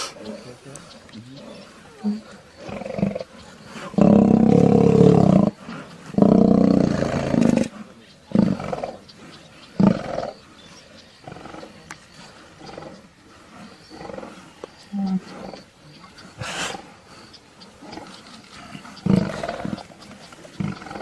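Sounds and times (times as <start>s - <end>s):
lions snarling and growling: 0.0s - 21.0s
lions roaring: 1.4s - 9.1s, 9.7s - 10.4s, 17.7s - 21.0s.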